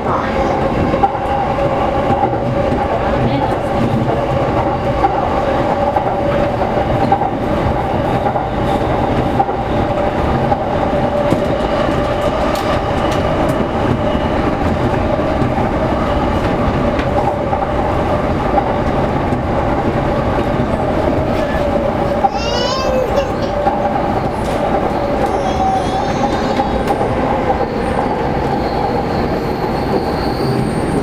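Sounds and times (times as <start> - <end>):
electric train running on track: 0.0 - 31.0.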